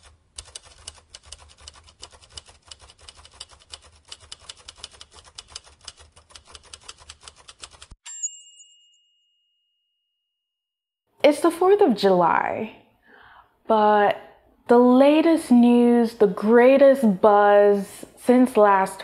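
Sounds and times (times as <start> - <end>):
typewriter keys clacking: 0.0 - 8.0
typewriter bell ding: 8.0 - 9.2.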